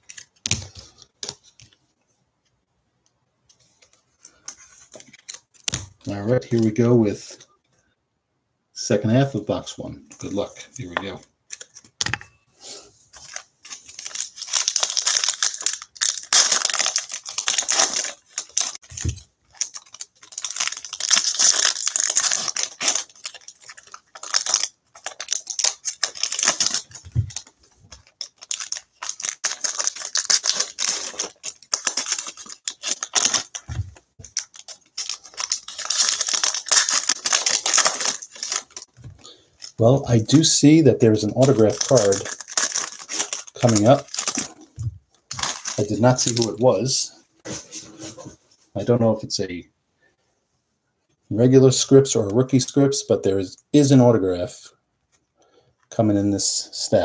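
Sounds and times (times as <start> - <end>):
foil wrappers tearing and crinkling: 13.2 - 38.9, 39.6 - 44.7, 45.3 - 46.6.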